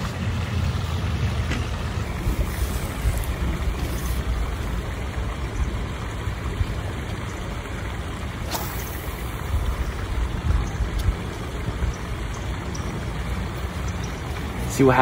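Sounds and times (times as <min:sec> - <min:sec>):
wind buffeting microphone: 0:00.0 - 0:14.7.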